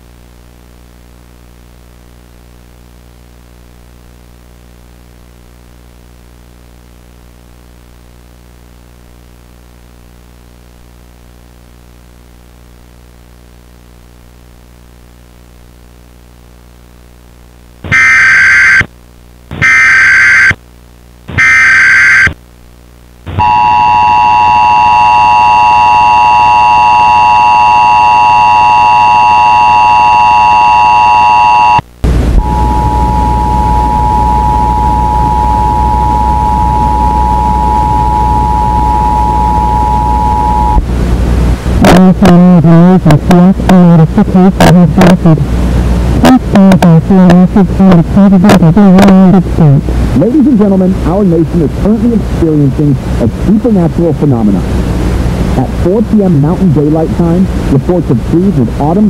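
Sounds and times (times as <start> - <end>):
low steady hum: 0.0 - 59.0
digital data bursts: 17.9 - 18.9, 19.5 - 20.6
two-tone alert signal: 23.4 - 31.8, 32.4 - 40.8
loud rushing static: 28.2 - 59.0.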